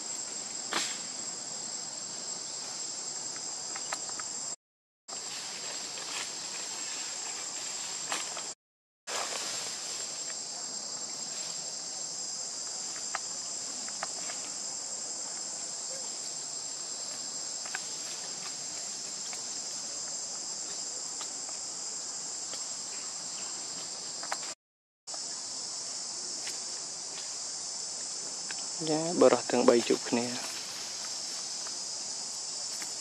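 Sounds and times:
insect chorus drone: 0:00.0 - 0:33.0.

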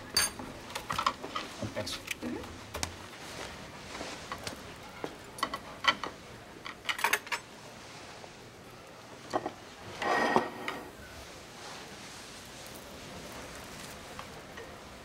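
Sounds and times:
dishes and cutlery clinking: 0:00.0 - 0:01.6, 0:05.4 - 0:07.5, 0:09.3 - 0:10.9.

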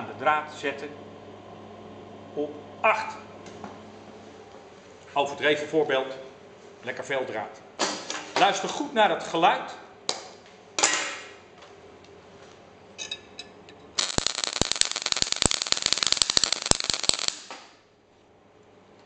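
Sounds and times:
welding arc crackling: 0:14.0 - 0:17.8.

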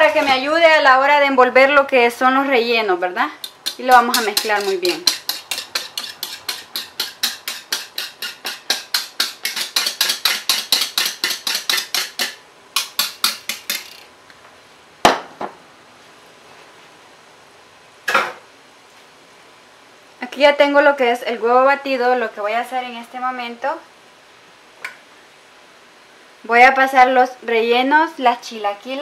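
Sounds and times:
whisk beating batter in bowl: 0:03.4 - 0:13.9.

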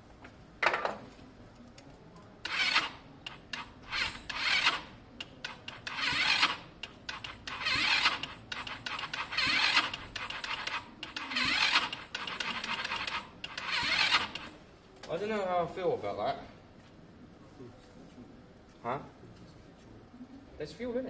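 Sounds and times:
scooter engine cranking: 0:02.4 - 0:14.6.

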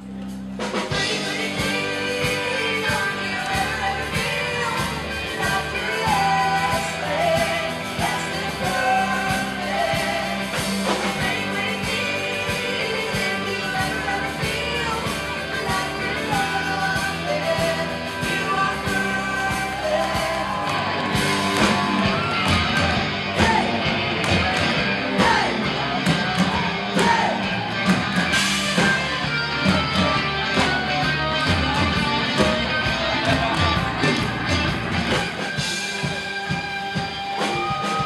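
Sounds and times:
rock band playing: 0:00.0 - 0:38.0
women singing: 0:00.9 - 0:23.9
drum hits: 0:20.2 - 0:36.7.

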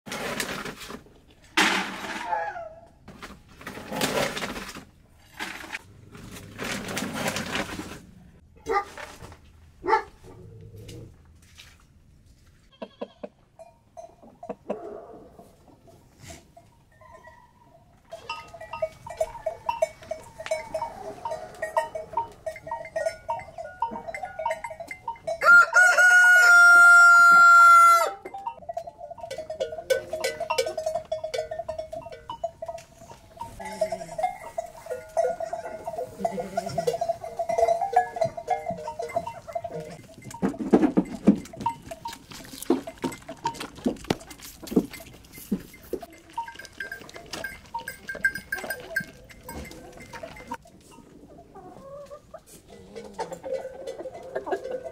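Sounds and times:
knocks and scuffling: 0:00.1 - 0:02.4, 0:03.0 - 0:12.7, 0:28.3 - 0:51.2
chickens calling: 0:17.0 - 0:28.5, 0:32.7 - 0:54.9
rooster crowing: 0:25.4 - 0:28.2.

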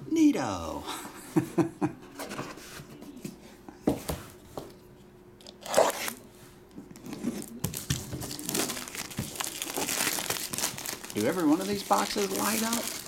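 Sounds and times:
shrink-wrap plastic crinkling: 0:07.4 - 0:13.0.

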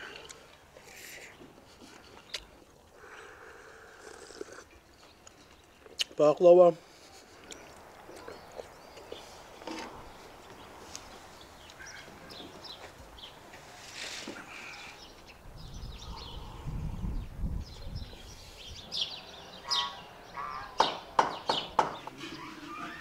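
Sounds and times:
small birds chirping: 0:00.0 - 0:23.0.

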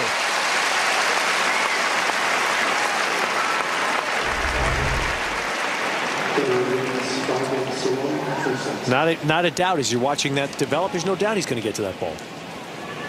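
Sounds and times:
crowd applauding: 0:00.0 - 0:07.5
low rumble: 0:04.2 - 0:05.5.

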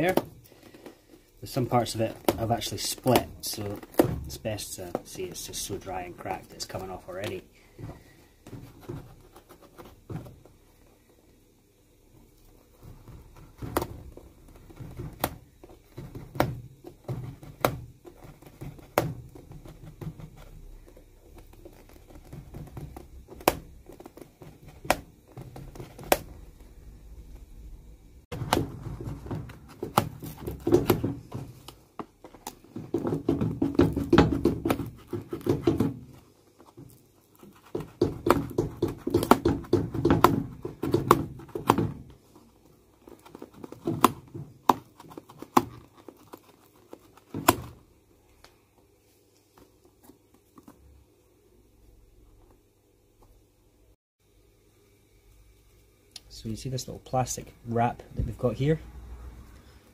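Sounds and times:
leather clicking and ticking: 0:12.4 - 0:26.4.

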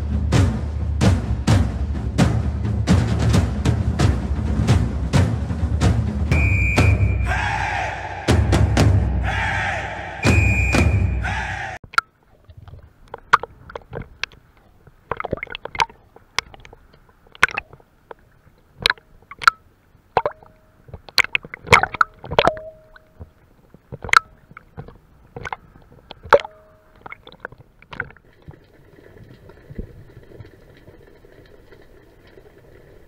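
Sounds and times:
water gurgling: 0:11.8 - 0:33.0
sea water sloshing and splashing: 0:12.2 - 0:33.0.

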